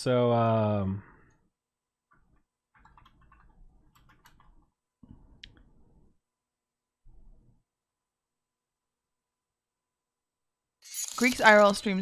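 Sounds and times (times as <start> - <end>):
keyboard and mouse clicking: 2.1 - 4.7.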